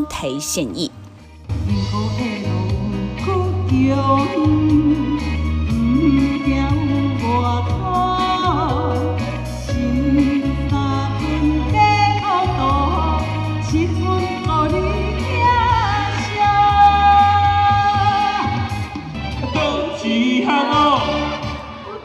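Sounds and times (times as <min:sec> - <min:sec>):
amplified backing music: 0:00.0 - 0:22.0
woman singing pop song: 0:01.5 - 0:21.1
man singing: 0:19.4 - 0:21.6.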